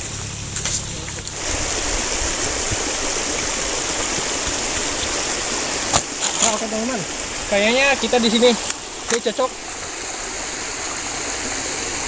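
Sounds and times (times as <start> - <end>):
footsteps through grass: 0.0 - 6.8
river water rushing: 0.0 - 12.0.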